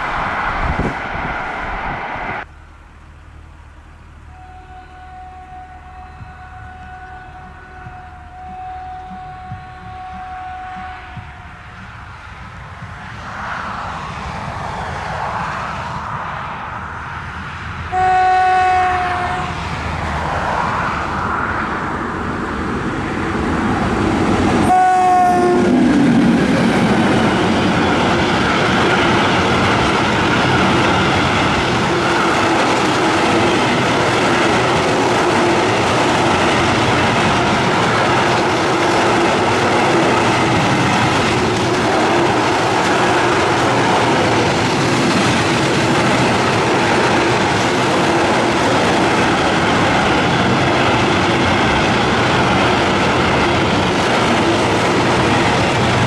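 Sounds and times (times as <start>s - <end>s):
locomotive horn blasts: 4.3s - 11.8s, 17.9s - 19.6s, 24.6s - 25.8s
freight train wheels clattering: 25.6s - 56.0s.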